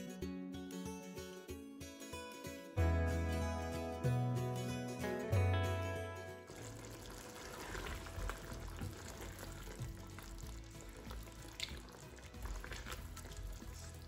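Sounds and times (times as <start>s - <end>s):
sauce sizzling and bubbling in a wok: 6.5s - 14.0s.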